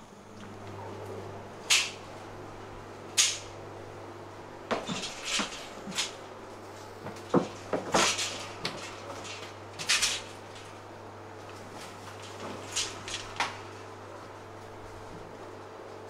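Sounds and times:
clunks and rattles on metal cage: 4.7 - 6.3, 7.1 - 10.9, 11.5 - 13.7.

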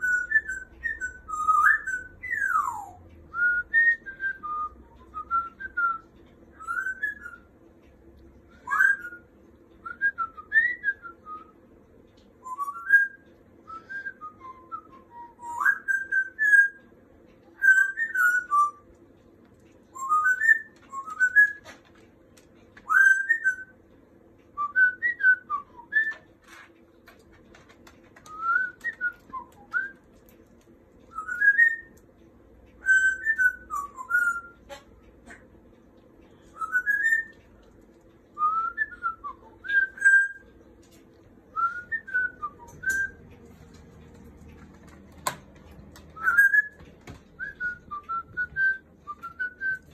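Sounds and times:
parrot whistling: 0.0 - 7.5, 8.6 - 9.3, 12.4 - 16.9, 17.5 - 18.8, 19.9 - 21.7, 22.8 - 23.8, 28.3 - 30.0, 31.1 - 32.0, 32.8 - 34.9, 36.4 - 37.4, 38.4 - 40.6, 41.6 - 43.2, 46.0 - 46.8, 47.4 - 49.9
faint hum: 0.0 - 49.9.

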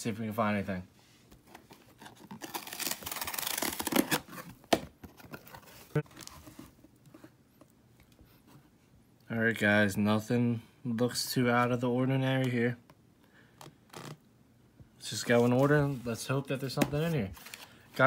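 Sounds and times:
cardboard box tearing: 2.0 - 6.4.

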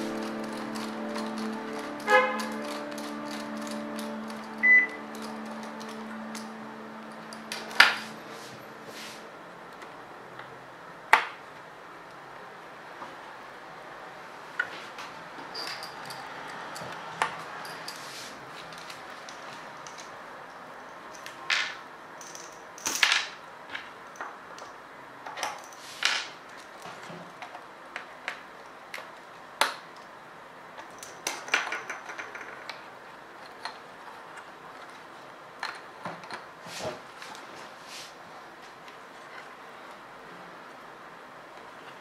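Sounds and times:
faint steady hiss: 0.0 - 42.0.

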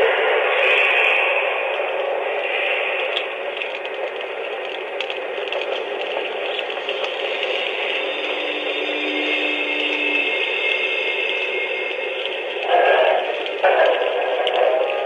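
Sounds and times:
faint clicks: 1.7 - 8.5, 10.7 - 15.0.

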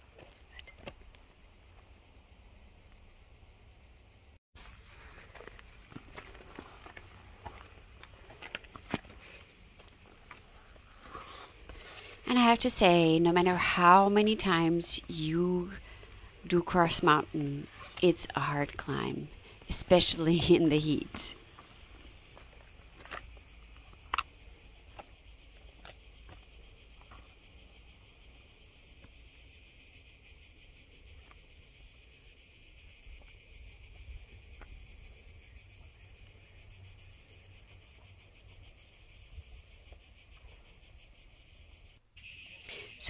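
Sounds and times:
insects chirring: 0.0 - 43.0
footsteps on loose stones: 4.6 - 12.2, 21.0 - 27.3.

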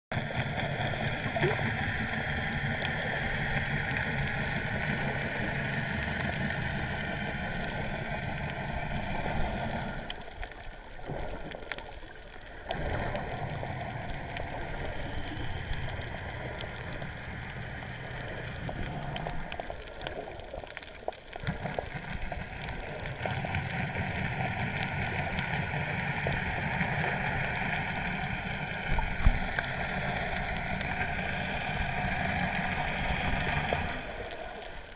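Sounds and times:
muffled underwater water rush: 0.1 - 34.9
low hum: 21.5 - 34.9.

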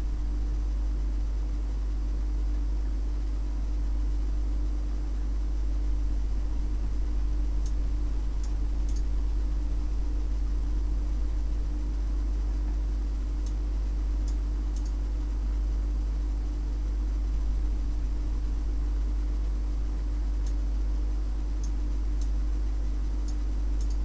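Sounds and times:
electrical hum and hiss: 0.0 - 24.0
faint clicks: 8.4 - 9.1, 14.2 - 15.0, 21.6 - 22.4, 23.2 - 24.0.

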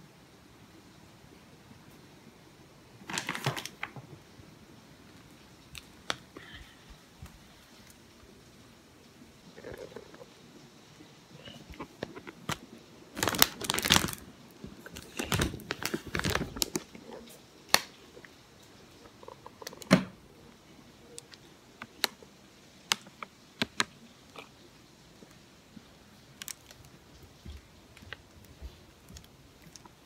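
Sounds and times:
snack packaging crinkling: 3.0 - 4.0, 11.4 - 18.3, 26.4 - 30.0.

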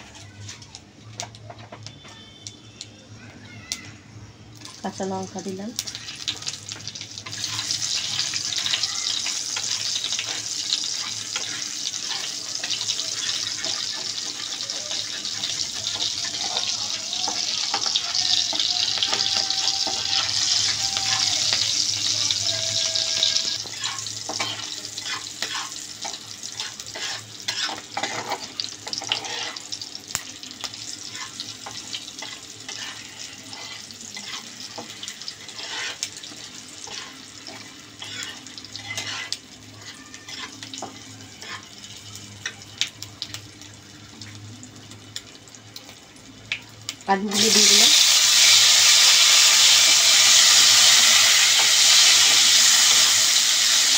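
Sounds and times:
chillies sizzling in hot oil: 3.5 - 53.9
spatula scraping and tapping pan: 23.6 - 29.7, 31.1 - 41.7.

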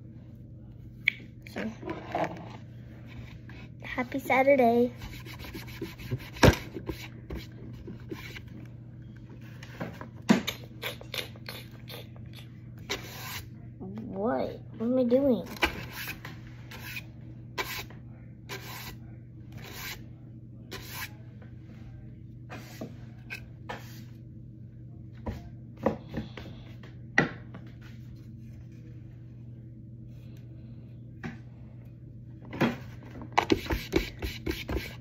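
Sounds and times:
low hum: 15.8 - 33.4.

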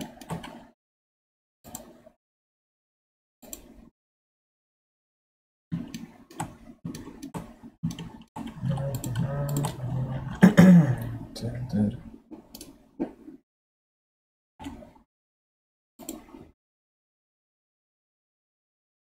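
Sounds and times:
computer mouse clicks: 0.0 - 0.7, 1.7 - 2.1, 3.4 - 3.8, 5.8 - 10.0, 12.3 - 13.2, 16.0 - 16.5
low wordless voice: 8.6 - 12.1.

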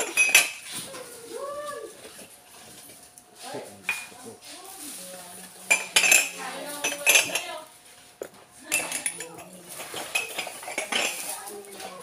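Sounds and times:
ceramic mugs clinking: 0.0 - 0.6, 3.8 - 4.2, 5.6 - 7.6, 8.2 - 12.0.

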